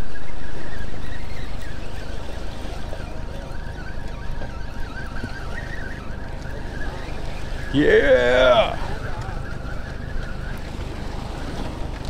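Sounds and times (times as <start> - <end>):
faint wavering whine: 0.0 - 12.0
wind buffeting microphone: 0.0 - 12.0
sea waves washing against rocks: 6.6 - 12.0.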